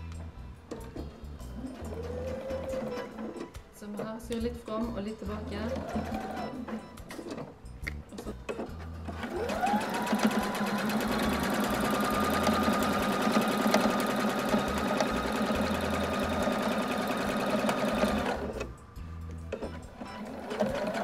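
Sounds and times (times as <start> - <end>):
electric sewing machine stitching: 5.6 - 6.7, 9.1 - 18.7, 20.2 - 21.0.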